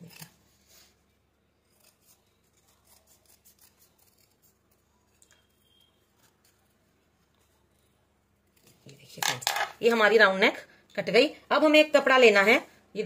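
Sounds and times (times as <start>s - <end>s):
scissors snipping stiff fabric: 1.7s - 5.4s.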